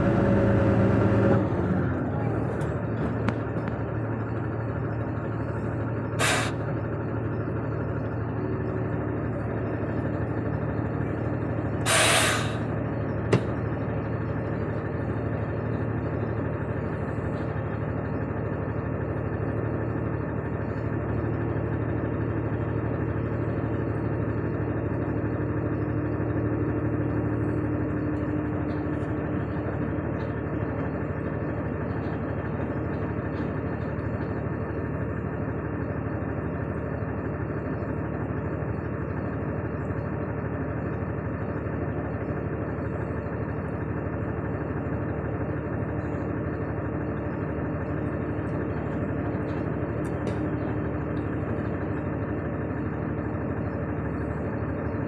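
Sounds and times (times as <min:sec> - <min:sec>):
tractor diesel engine running: 0:00.0 - 0:55.0
short hisses: 0:06.2 - 0:06.6, 0:11.8 - 0:12.6.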